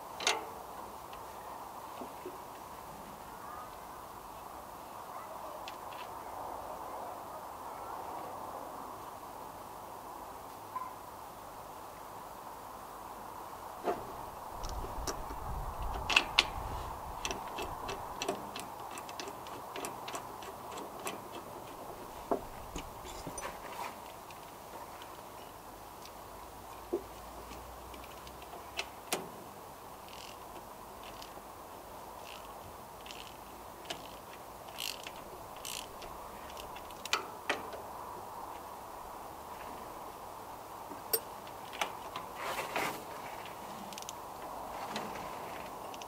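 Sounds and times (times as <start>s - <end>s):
ratchet bursts: 32.2s - 37.2s.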